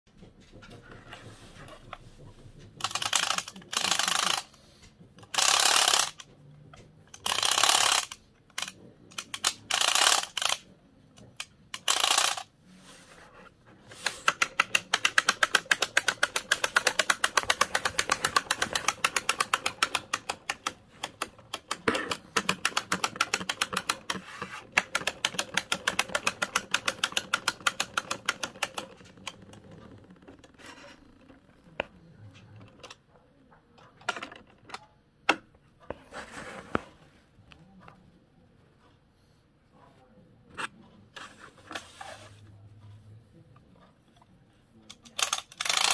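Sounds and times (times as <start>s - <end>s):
clockwork toy clicking: 2.7s - 4.6s, 5.2s - 12.5s, 14.0s - 33.0s, 44.8s - 45.9s
wind-up key ratchet rasping: 2.8s - 4.5s, 5.3s - 6.2s, 7.2s - 10.6s, 11.8s - 12.5s, 45.2s - 45.9s.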